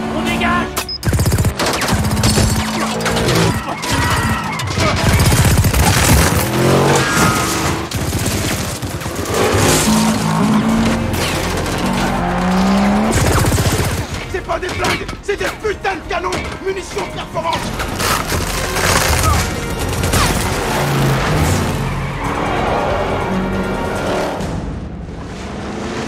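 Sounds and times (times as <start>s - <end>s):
dramatic film score: 0.0s - 26.0s
miniguns firing rapid bursts: 0.9s - 9.9s, 13.0s - 14.4s, 17.8s - 20.9s.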